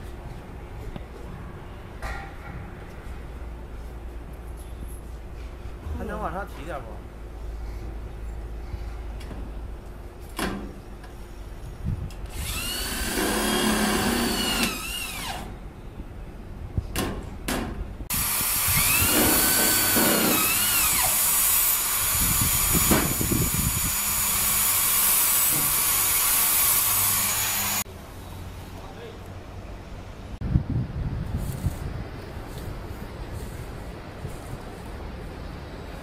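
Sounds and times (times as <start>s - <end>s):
electric drill driving screws: 12.3s - 15.5s, 18.1s - 27.8s.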